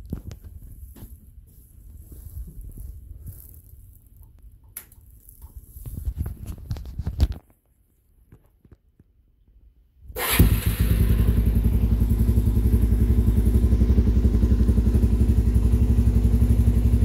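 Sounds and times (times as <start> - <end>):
rustling handling noise: 0.0 - 9.1.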